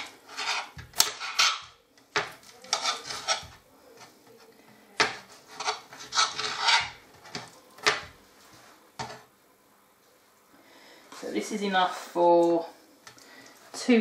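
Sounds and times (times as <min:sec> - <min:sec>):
knife cutting on glass board: 0:00.0 - 0:03.6, 0:05.0 - 0:08.1.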